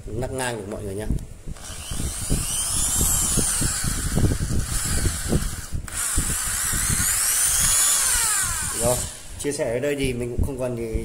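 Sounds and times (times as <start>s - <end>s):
electric drill motor whine: 1.6s - 9.5s.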